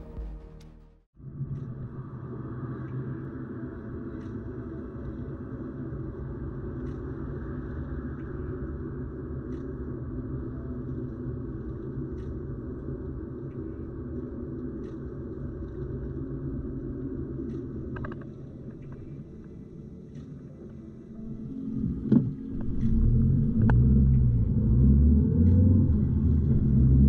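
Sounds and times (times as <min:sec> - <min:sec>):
road and engine rumble: 0:21.3 - 0:27.0.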